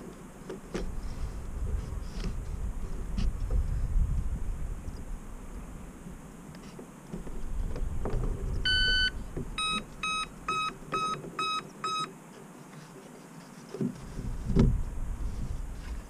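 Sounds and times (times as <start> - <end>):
long electronic tone: 8.6 - 12.0
short beeps: 8.7 - 12.1
low handling thump: 14.2 - 14.8.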